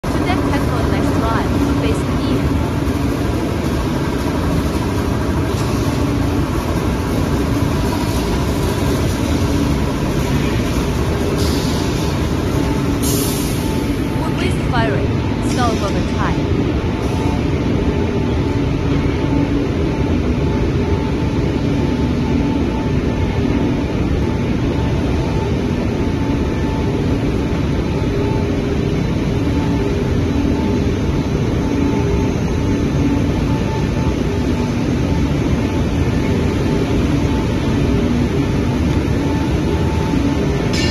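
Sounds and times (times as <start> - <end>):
machine drone from fans: 0.0 - 40.9
steady hum: 0.0 - 40.9.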